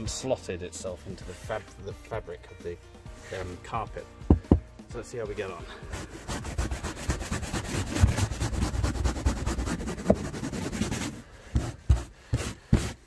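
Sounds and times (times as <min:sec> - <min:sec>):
plastic brush scrubbing carpet: 0:05.8 - 0:13.0.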